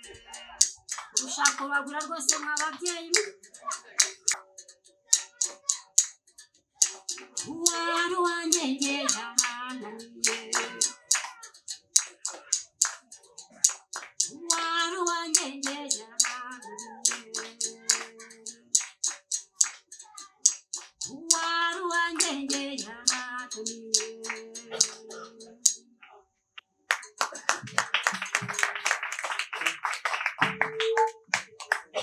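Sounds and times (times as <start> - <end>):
person singing: 0.0 - 4.4, 5.1 - 5.9, 6.8 - 13.0, 13.6 - 25.8, 30.4 - 32.0.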